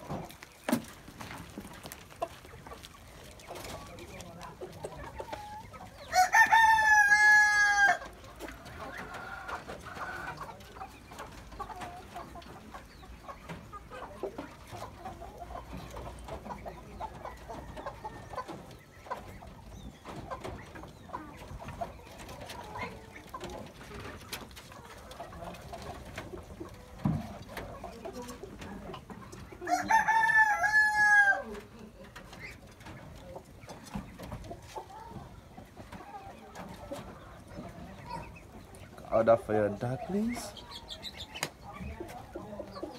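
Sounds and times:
hens clucking: 0:00.0 - 0:42.9
rooster crowing: 0:06.1 - 0:08.1, 0:29.6 - 0:31.5.

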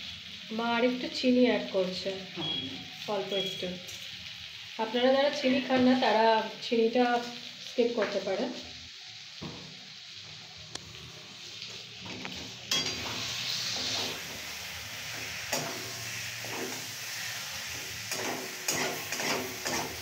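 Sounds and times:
potatoes sizzling in oil: 0:00.0 - 0:20.0
metal spatula scraping a pan: 0:12.0 - 0:20.0.

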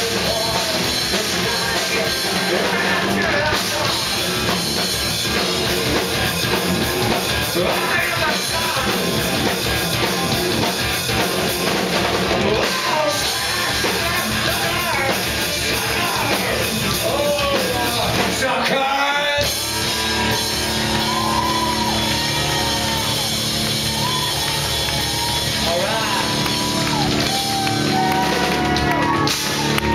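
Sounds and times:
man singing: 0:00.0 - 0:04.7, 0:07.4 - 0:10.7, 0:12.3 - 0:19.6
rock band playing loud: 0:00.0 - 0:29.9.

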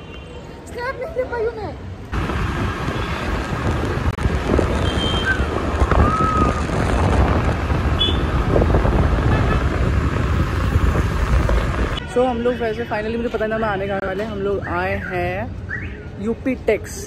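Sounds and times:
road traffic: 0:00.0 - 0:17.0
wind rushing over microphone: 0:02.1 - 0:12.2.

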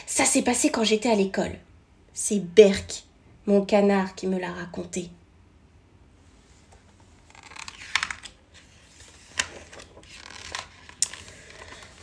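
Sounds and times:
paper pages rustling: 0:06.6 - 0:12.0.

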